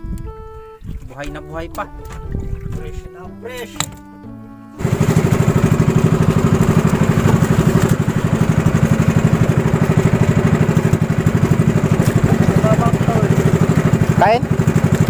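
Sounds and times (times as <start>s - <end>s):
boat engine pulsing: 0.0s - 15.0s
wind and water rushing: 4.8s - 15.0s.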